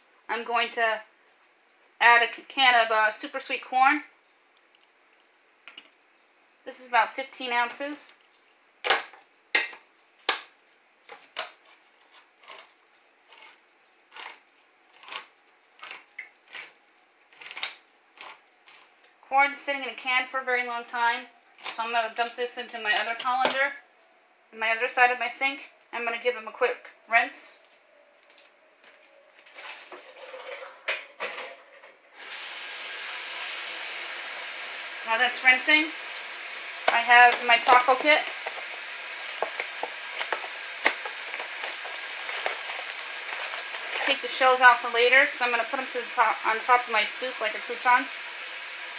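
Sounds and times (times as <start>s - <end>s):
corn clattering into colander: 29.5s - 32.0s
tap water running: 32.1s - 48.9s
can opener clicking: 36.1s - 44.2s.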